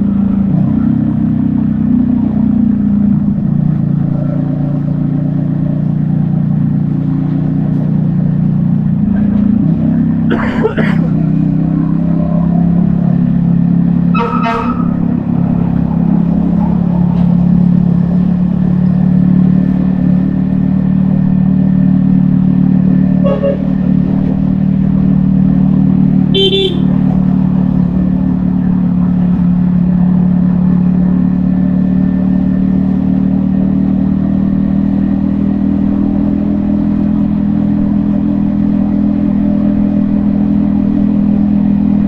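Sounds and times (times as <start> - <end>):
motorcycle engine running: 0.0 - 42.0
vehicle horns tooting: 14.1 - 15.2, 23.2 - 23.9, 26.3 - 27.1.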